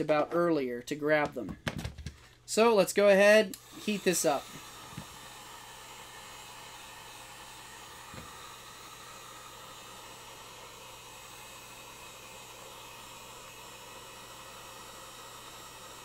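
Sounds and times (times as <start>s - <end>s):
heat gun blowing air: 3.2s - 16.0s.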